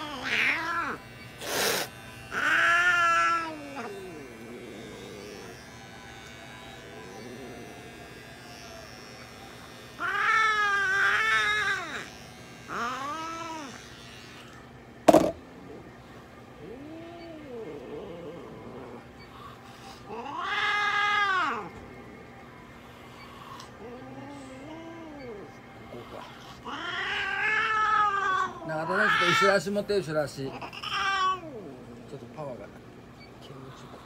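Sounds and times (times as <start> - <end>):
cat yowling: 0.0 - 1.0, 2.3 - 5.5, 10.0 - 12.1, 20.1 - 21.8, 26.2 - 29.6, 30.6 - 31.8
sharp knock: 15.1 - 15.4.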